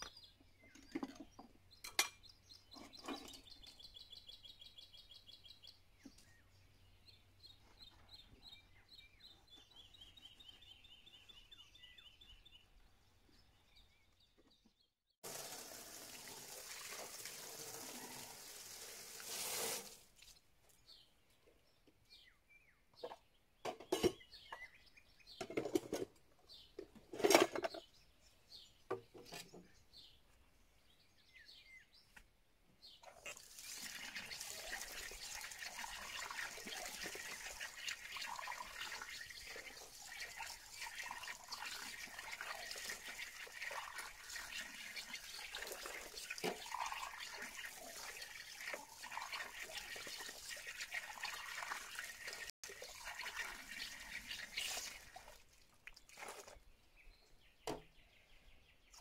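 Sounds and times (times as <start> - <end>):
tap water running: 15.2 - 20.1, 33.3 - 56.5.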